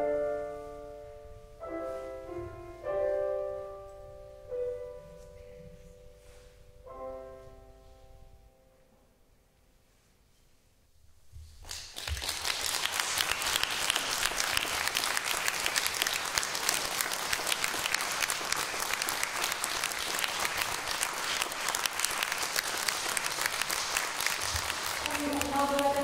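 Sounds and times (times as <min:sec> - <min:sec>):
audience applauding: 0:11.6 - 0:26.0.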